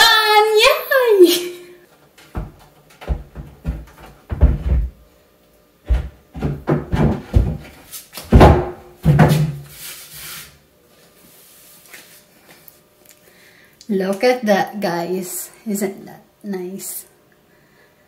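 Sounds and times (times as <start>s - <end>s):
shelf board knocking and thudding: 2.3s - 5.0s, 5.8s - 9.7s.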